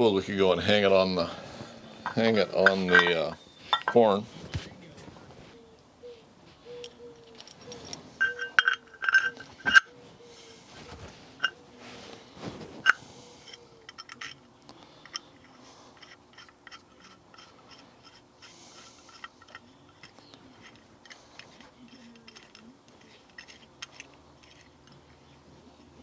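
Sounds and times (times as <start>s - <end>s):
small metal parts clicking: 6.8s - 9.9s, 12.8s - 25.3s.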